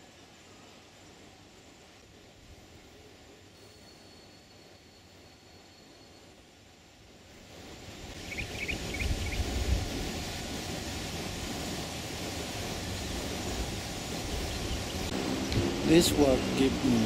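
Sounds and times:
wind rushing over microphone: 7.8s - 17.0s.

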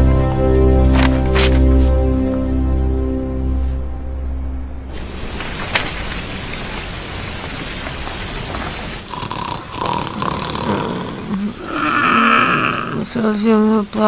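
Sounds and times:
fountain water splashing: 4.9s - 11.7s
man snoring with whistling notes: 9.1s - 13.0s.

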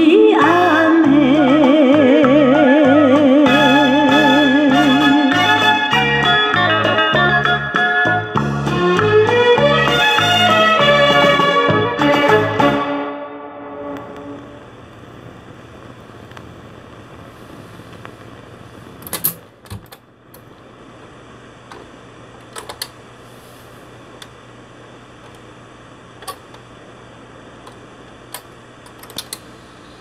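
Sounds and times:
vinyl surface noise and hum: 0.0s - 30.0s
tonearm clicks and clunks: 21.7s - 23.0s, 26.2s - 26.6s.

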